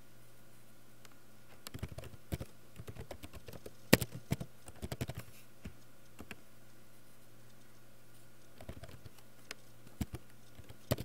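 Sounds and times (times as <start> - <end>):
computer keyboard typing: 1.6 - 6.4, 8.5 - 9.2, 9.9 - 11.0.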